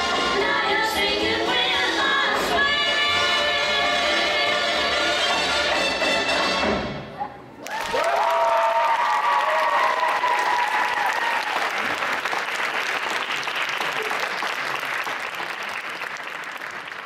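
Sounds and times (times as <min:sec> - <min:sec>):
audience applauding: 0:07.6 - 0:17.0.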